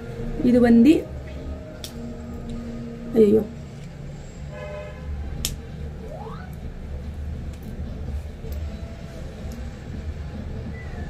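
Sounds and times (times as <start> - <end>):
faint rising tone: 6.0 - 6.7.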